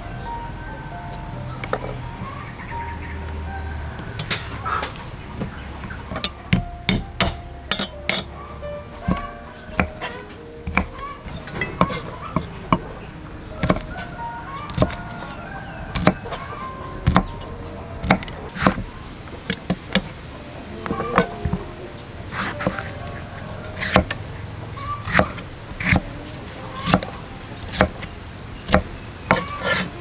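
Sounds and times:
knife chopping on wooden block: 5.4s - 8.3s, 9.1s - 12.8s, 13.6s - 14.0s, 14.7s - 15.0s, 15.9s - 16.4s, 17.0s - 17.4s, 18.0s - 18.9s, 22.3s - 22.9s, 23.8s - 24.2s, 25.0s - 26.1s, 26.8s - 29.9s.

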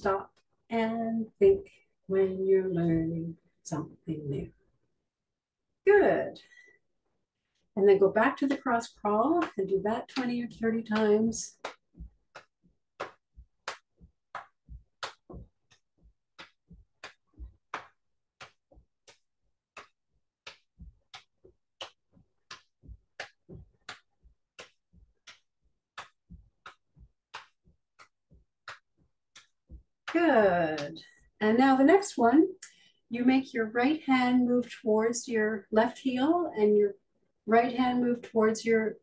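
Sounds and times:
hands patting knees: 9.3s - 31.0s.

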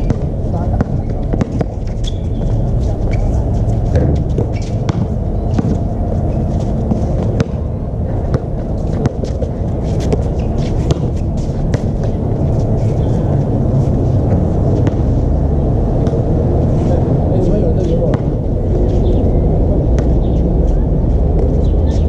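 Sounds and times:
basketball bouncing: 0.0s - 2.6s, 3.8s - 5.9s, 6.5s - 7.7s, 8.3s - 12.3s, 14.3s - 15.1s, 16.0s - 16.3s, 18.1s - 18.3s
feet striking court: 0.0s - 13.2s, 14.1s - 15.2s
low rumble on microphone: 0.0s - 22.0s.

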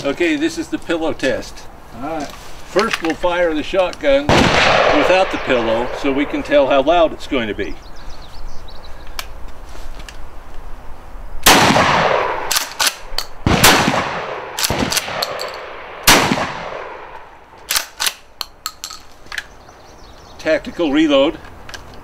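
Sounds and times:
shotgun shots echoing: 4.2s - 7.1s, 11.4s - 17.2s
shotgun action clicks: 12.5s - 13.4s, 14.6s - 16.2s, 17.6s - 19.5s.

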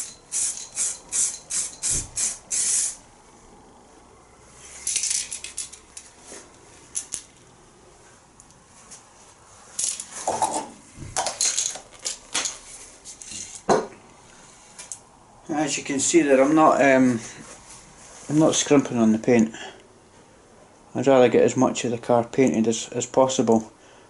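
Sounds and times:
spray paint can hissing: 0.0s - 3.0s
metallic clinks and knocks: 4.8s - 6.1s, 9.8s - 13.9s.

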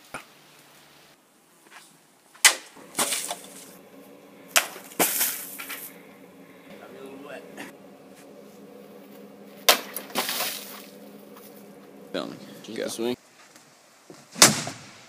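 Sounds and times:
water splashing: 2.8s - 12.8s.

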